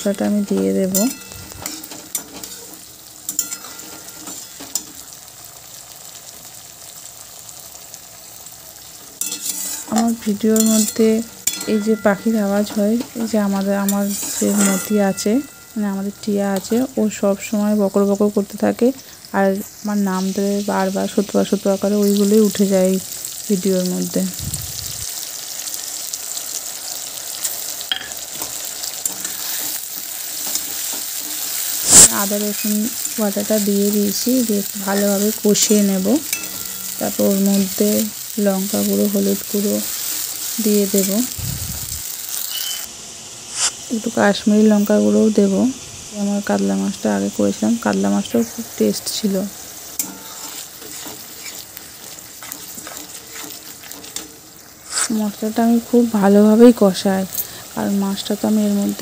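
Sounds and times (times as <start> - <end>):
vegetables sizzling in hot oil: 0.0 - 59.0
spatula scraping a pan: 0.9 - 5.0, 9.2 - 16.7, 27.2 - 33.2, 49.8 - 55.2.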